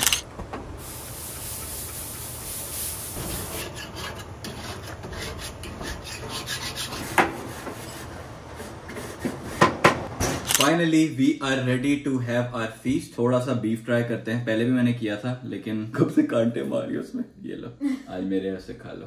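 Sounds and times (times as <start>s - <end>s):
grill brush scraping grates: 1.0s - 9.7s.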